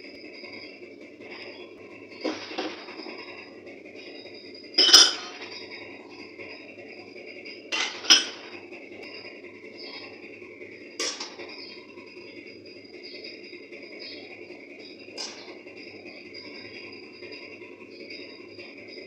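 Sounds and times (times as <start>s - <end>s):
spoon and plate clinking on pot: 2.2s - 3.3s, 4.8s - 5.7s, 7.7s - 8.6s, 11.0s - 11.5s.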